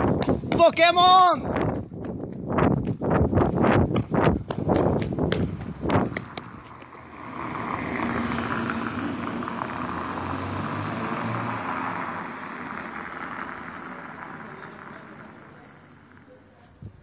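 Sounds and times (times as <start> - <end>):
vehicle passing by: 4.2 - 16.7.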